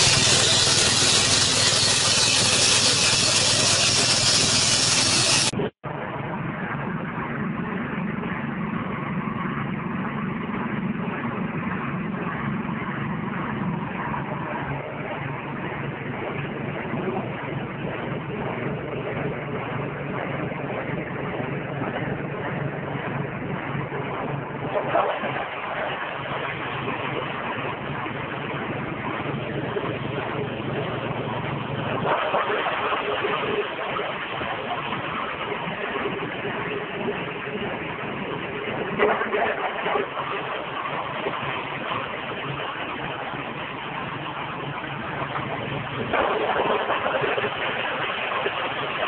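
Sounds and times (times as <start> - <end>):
small engine droning: 0.0 - 5.7.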